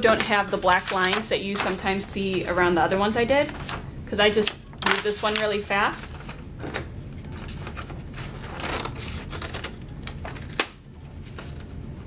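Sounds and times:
paper crinkling: 0:00.0 - 0:03.8, 0:04.9 - 0:12.0
scissors cutting paper: 0:06.2 - 0:11.7.

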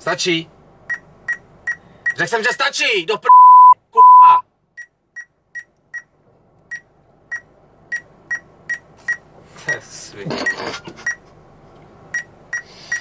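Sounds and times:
censor bleep: 0:03.3 - 0:04.4.

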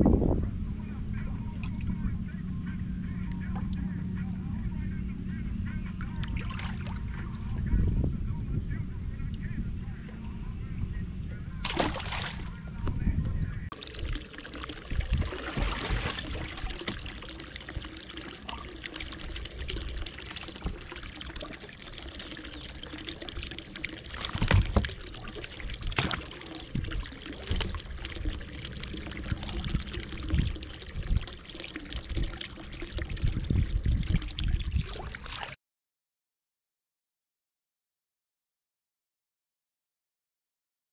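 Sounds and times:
water pouring and trickling: 0:06.0 - 0:08.0, 0:11.6 - 0:12.6, 0:13.7 - 0:35.6
low thumps: 0:24.2 - 0:25.1.

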